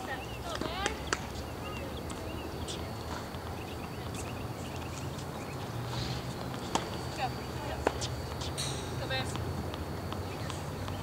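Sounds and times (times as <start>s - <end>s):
faint distant taps: 0.4s - 2.4s, 6.4s - 11.0s.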